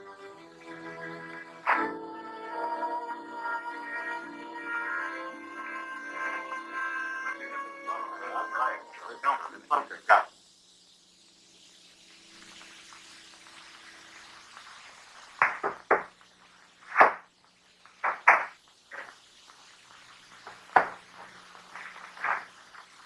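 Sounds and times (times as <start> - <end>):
sharp knocks and clacks: 15.4 - 16.2, 18.0 - 19.1, 20.7 - 21.0.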